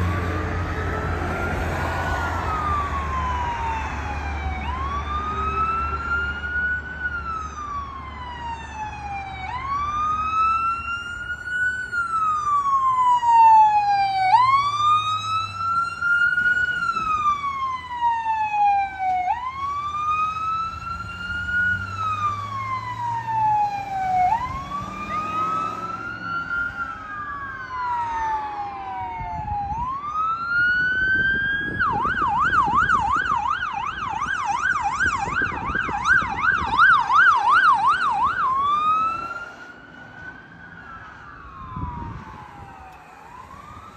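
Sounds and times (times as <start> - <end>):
emergency siren wailing: 0.0 - 43.9
faint second siren: 0.0 - 43.9
fast siren yelp: 0.0 - 43.9.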